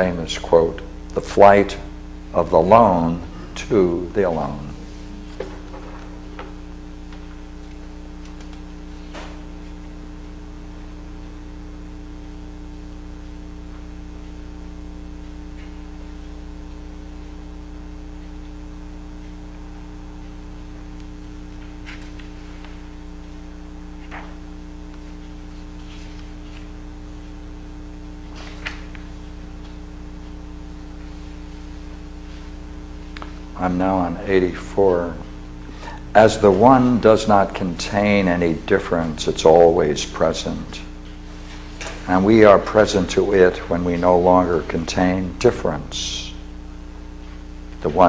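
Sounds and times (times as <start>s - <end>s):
electrical mains hum: 0.0s - 48.0s
book pages turning: 21.6s - 22.8s, 24.0s - 24.4s, 28.3s - 29.8s.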